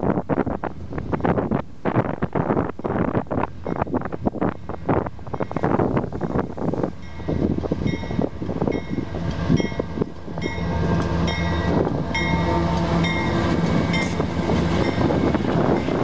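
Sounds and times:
diesel locomotive engines droning: 0.6 - 16.0.

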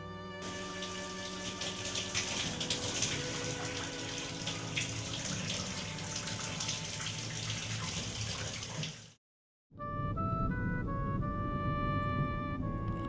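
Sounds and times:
music with held notes: 0.0 - 7.4, 9.8 - 13.0
shower water spraying: 0.4 - 9.2.

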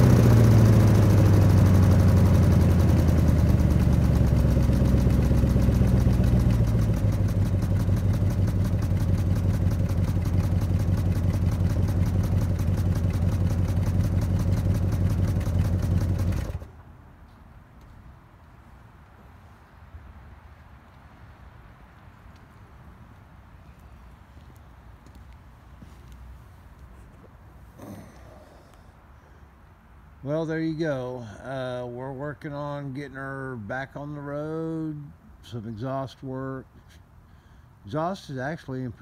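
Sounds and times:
car engine idling: 0.0 - 16.8.

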